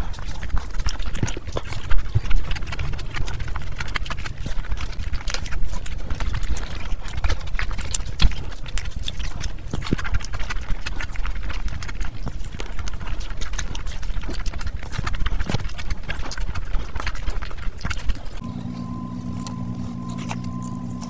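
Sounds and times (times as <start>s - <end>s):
wet chewing mouth clicks: 0.0s - 21.0s.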